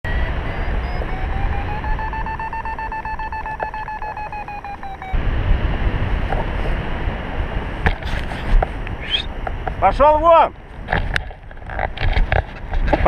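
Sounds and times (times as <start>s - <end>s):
variometer beeping: 0.0s - 5.2s
wind noise on microphone: 0.1s - 13.0s.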